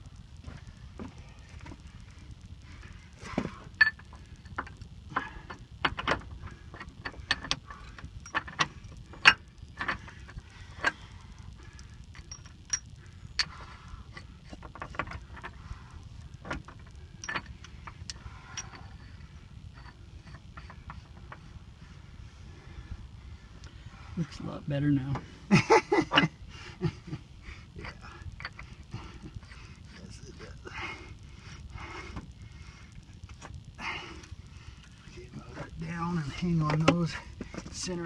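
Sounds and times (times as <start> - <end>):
steady low rumble: 0.0 - 38.0
metallic clinks of bolts and nuts: 5.4 - 11.0, 11.8 - 15.6, 16.6 - 18.8.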